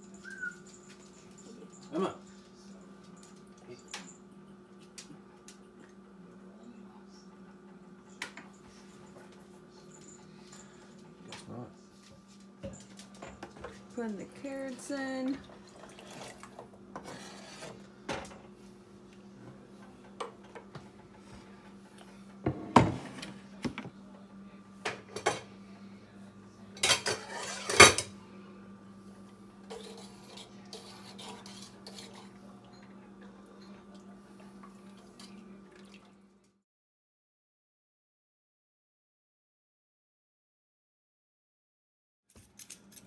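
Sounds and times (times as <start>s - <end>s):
utensils clinking against pot: 26.8s - 28.1s, 29.6s - 33.0s.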